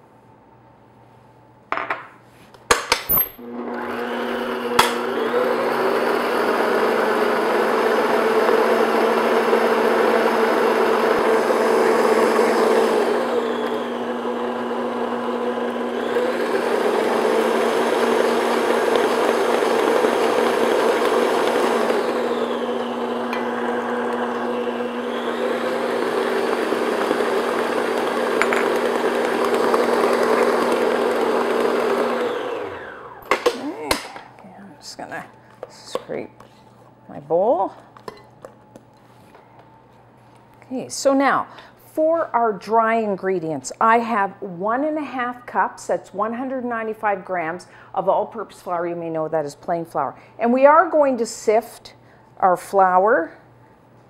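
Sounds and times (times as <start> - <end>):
stand mixer motor humming: 3.4 - 33.8.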